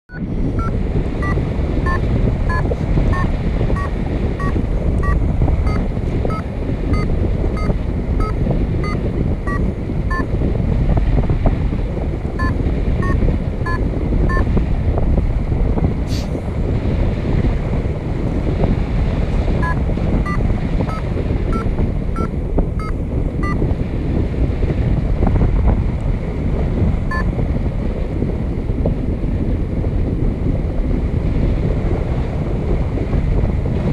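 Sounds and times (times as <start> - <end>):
variometer short beeps: 0.1 - 10.3, 12.4 - 14.6, 19.6 - 23.6, 27.1 - 27.3
wind buffeting microphone: 0.1 - 33.9.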